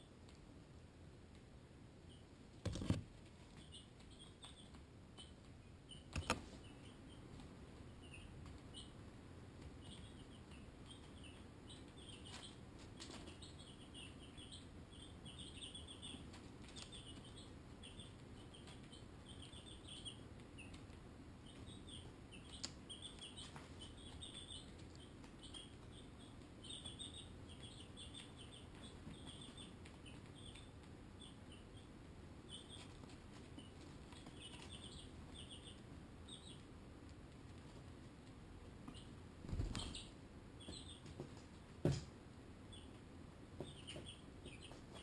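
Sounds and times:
low steady hum: 0:00.0 - 0:45.0
chicks peeping: 0:02.0 - 0:45.0.

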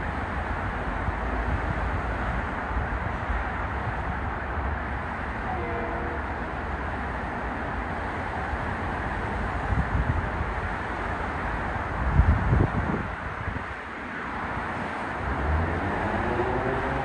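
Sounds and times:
train rumbling hiss: 0:00.0 - 0:17.0
faint train horn blast: 0:05.4 - 0:06.6.

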